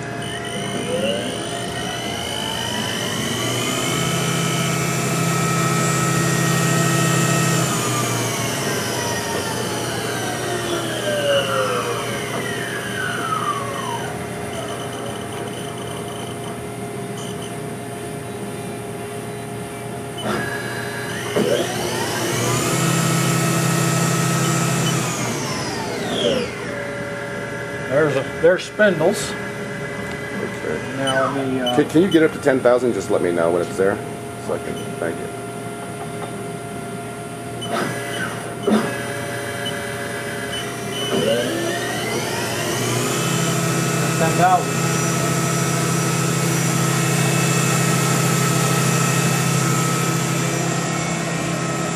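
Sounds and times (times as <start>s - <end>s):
machine hum and whine: 0.0s - 51.9s.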